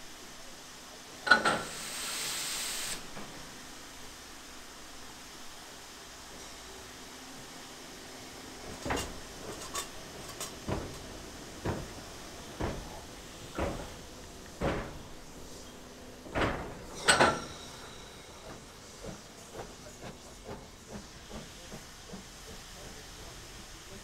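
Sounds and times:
locomotive knocking on track: 0:08.7 - 0:15.4, 0:16.2 - 0:24.0.

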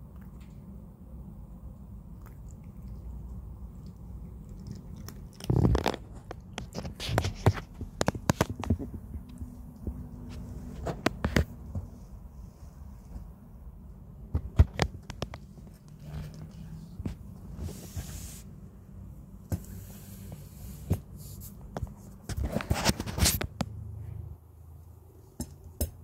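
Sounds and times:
cat crunching kibble: 0:01.7 - 0:11.6.

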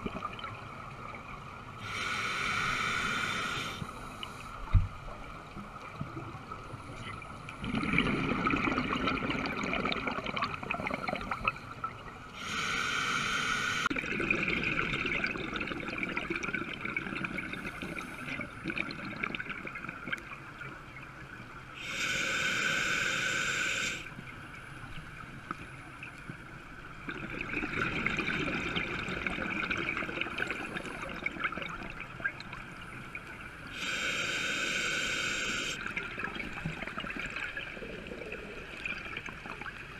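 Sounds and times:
regulator hissing inhale: 0:01.8 - 0:04.6, 0:12.4 - 0:13.9, 0:21.8 - 0:24.1, 0:33.7 - 0:35.9
gurgling exhaled bubbles: 0:07.6 - 0:11.6, 0:13.9 - 0:20.2, 0:27.0 - 0:32.5, 0:35.8 - 0:39.8.

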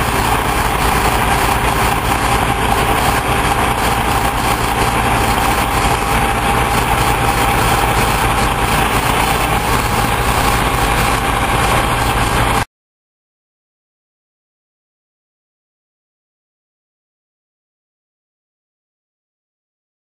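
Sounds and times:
dump truck diesel engine: 0:00.0 - 0:12.7
paver engine running: 0:00.0 - 0:12.7.

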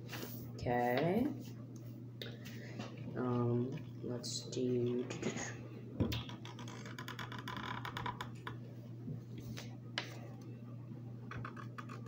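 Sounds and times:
markers scratching on paper: 0:11.3 - 0:12.0.

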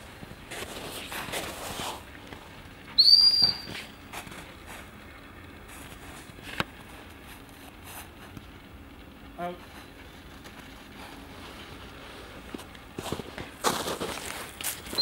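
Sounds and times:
dog whistle blast: 0:03.0 - 0:03.8.

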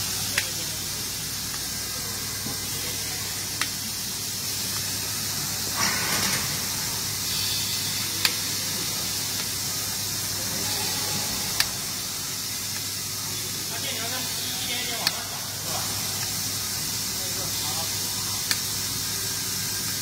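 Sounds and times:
low electrical hum: 0:00.0 - 0:20.0
welding hiss: 0:00.0 - 0:20.0.

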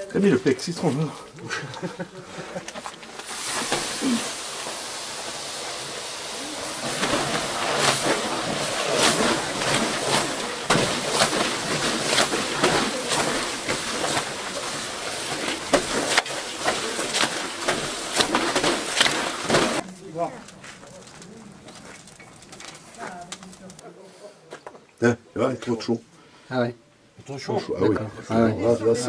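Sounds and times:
wet mop swishing and scraping: 0:00.5 - 0:19.9
wet cloth steaming hiss: 0:03.1 - 0:19.8.

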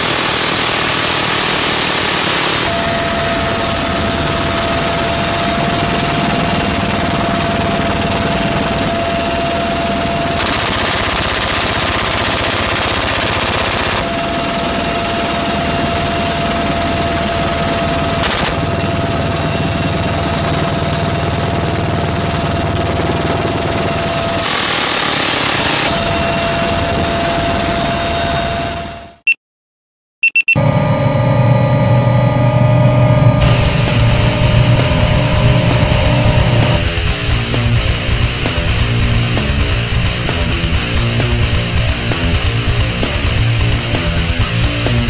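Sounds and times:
minigun firing bursts: 0:00.0 - 0:26.0
helicopter in flight: 0:00.0 - 0:29.2, 0:30.3 - 0:45.0.

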